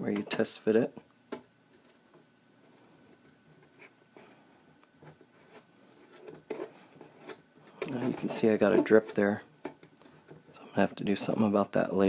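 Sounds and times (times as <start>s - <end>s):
soft plastic rubs: 1.7s - 10.6s.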